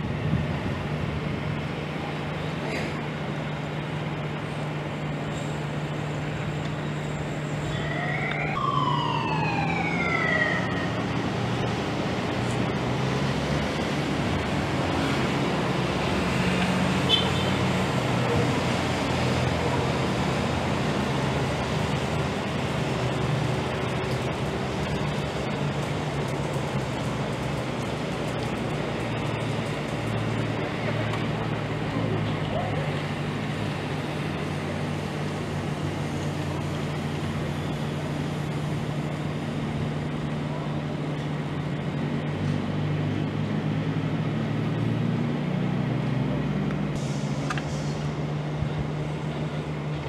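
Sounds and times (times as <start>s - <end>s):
street traffic hum: 0.0s - 50.0s
siren: 6.4s - 12.4s.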